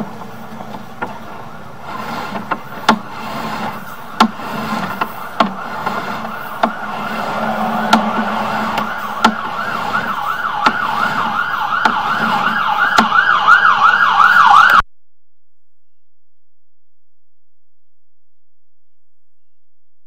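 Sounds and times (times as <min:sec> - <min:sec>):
steady low hum: 0:00.0 - 0:12.6
siren warbling: 0:05.5 - 0:14.8.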